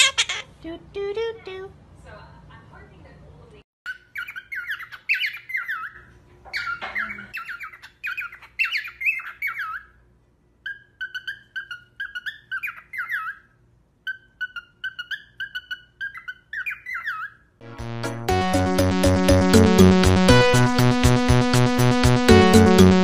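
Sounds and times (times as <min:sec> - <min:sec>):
cockatiel chirping and warbling: 0:03.9 - 0:10.0, 0:10.6 - 0:17.5.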